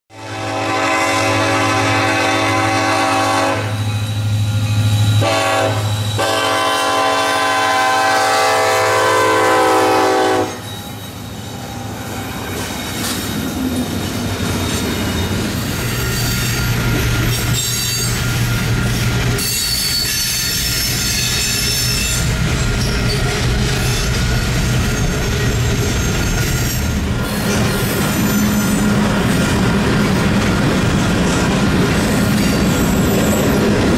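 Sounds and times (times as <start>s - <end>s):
train horn blasts: 0.1s - 3.9s, 5.2s - 10.7s
locomotive engine drone: 1.3s - 19.9s, 20.6s - 33.9s
wheel flange squeal: 3.7s - 6.3s, 10.5s - 29.0s, 32.0s - 33.6s
train wheels clacking on rails: 10.3s - 33.9s.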